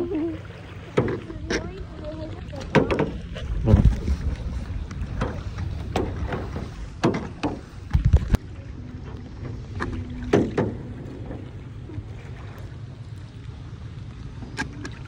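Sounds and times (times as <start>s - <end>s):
paddles splashing in water: 0.0s - 15.0s
wind on microphone: 1.2s - 12.1s.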